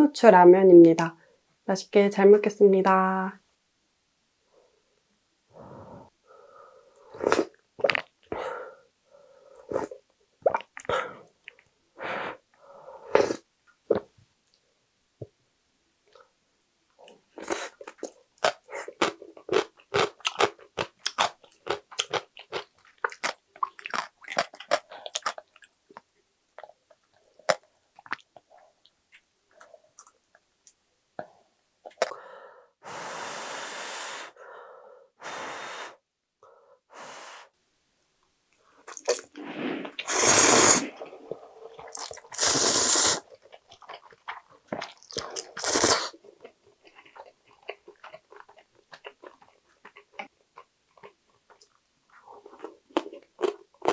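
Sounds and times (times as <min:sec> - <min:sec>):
wet chewing: 0:17.4 - 0:30.2, 0:40.9 - 0:42.6, 0:43.2 - 0:53.9
sipping broth: 0:38.9 - 0:43.3, 0:44.8 - 0:46.2.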